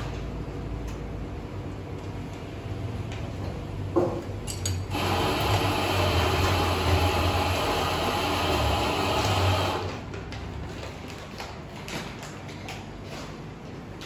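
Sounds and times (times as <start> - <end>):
coffee machine whirring hiss: 4.9 - 10.1.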